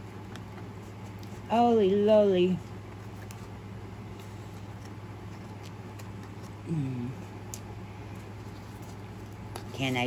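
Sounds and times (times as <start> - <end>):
steady low hum: 0.0 - 10.0
hands fiddling with package: 0.1 - 10.0
woman humming mm: 6.6 - 7.3.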